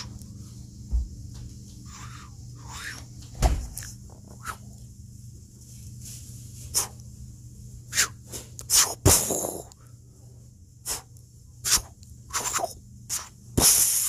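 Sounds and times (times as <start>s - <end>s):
faint low hum: 0.0s - 14.0s
short hissing swishes: 6.7s - 7.0s, 7.9s - 9.5s, 10.9s - 14.0s.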